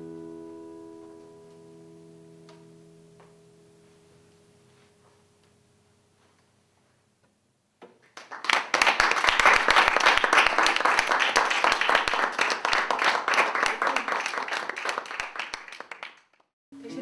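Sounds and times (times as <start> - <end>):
audience applause: 8.2 - 16.4.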